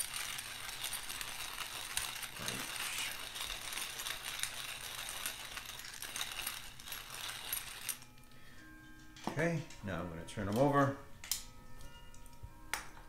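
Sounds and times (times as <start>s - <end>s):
pepper mill grinding: 0.0s - 8.3s.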